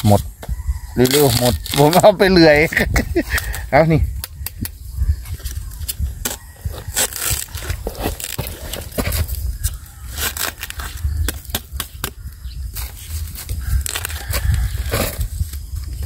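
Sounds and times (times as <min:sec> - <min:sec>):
dry leaf litter crackling: 0:01.0 - 0:02.8.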